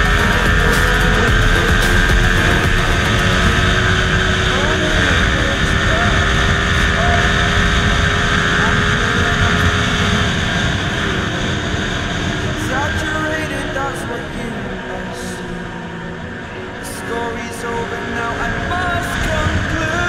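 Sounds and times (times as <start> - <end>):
motorcycle engine running: 0.0 - 12.2.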